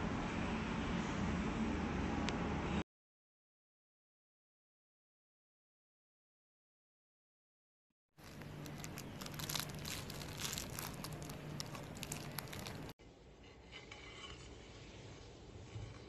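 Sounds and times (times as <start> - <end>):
plastic wrapping crinkling: 8.2 - 13.0
soft handling sounds: 8.2 - 16.0.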